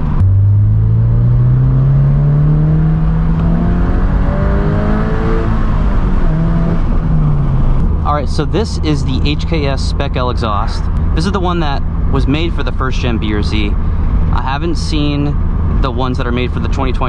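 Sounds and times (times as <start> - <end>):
car engine accelerating: 0.0 - 17.0.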